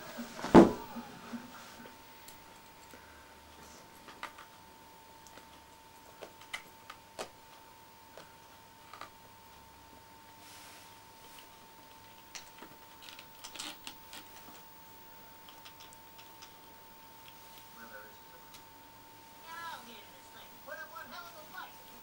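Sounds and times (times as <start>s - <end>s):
faint steady whine: 0.0s - 22.0s
thump: 0.4s - 1.0s.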